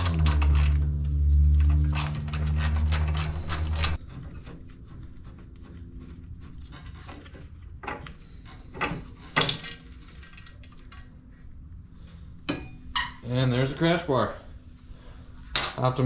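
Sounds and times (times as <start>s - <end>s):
metal clinks and knocks: 0.0s - 4.6s, 6.5s - 11.4s, 14.7s - 15.8s
low hum: 0.0s - 13.1s.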